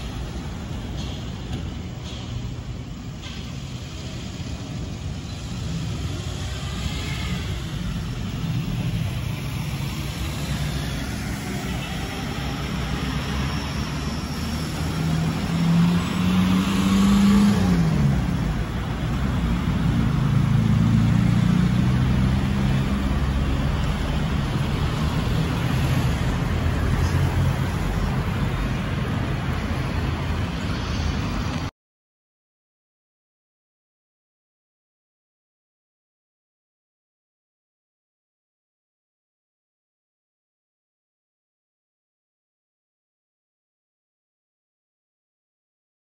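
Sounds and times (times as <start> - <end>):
road vehicle engine: 0.0 - 31.7.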